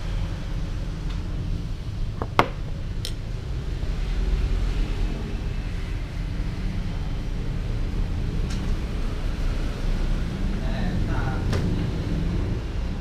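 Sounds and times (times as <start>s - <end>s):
camera handling knock: 2.2s - 2.7s.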